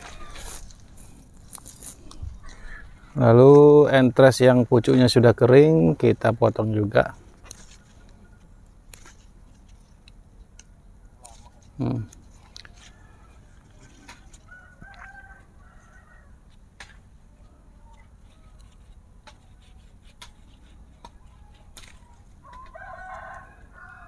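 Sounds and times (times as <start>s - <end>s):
chicken call: 0.0s - 0.6s
rooster crowing: 0.0s - 0.7s, 12.6s - 16.5s, 17.3s - 18.9s, 22.4s - 24.0s.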